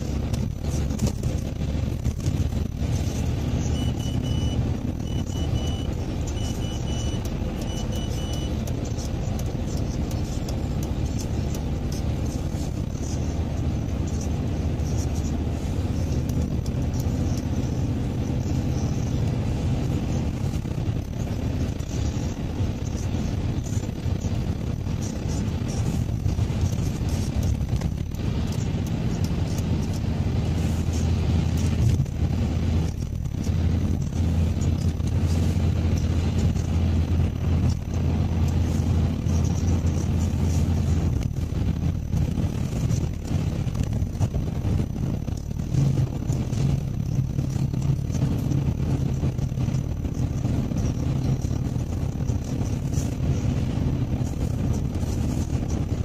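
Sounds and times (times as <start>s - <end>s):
car engine hum: 0.0s - 56.0s
tyres hissing on wet road: 8.8s - 27.6s, 28.2s - 41.6s, 50.3s - 56.0s.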